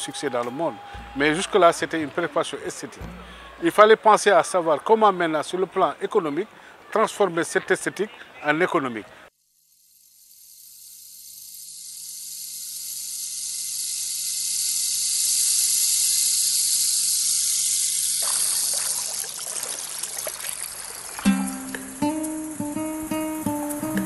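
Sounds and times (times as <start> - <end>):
acoustic guitar music: 0.8 - 3.8, 21.1 - 24.0
rushing hissing water noise: 13.3 - 24.0.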